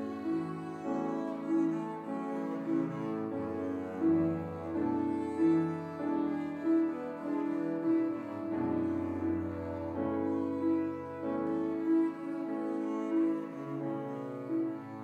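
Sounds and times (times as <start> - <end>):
piano accompaniment: 0.0 - 15.0.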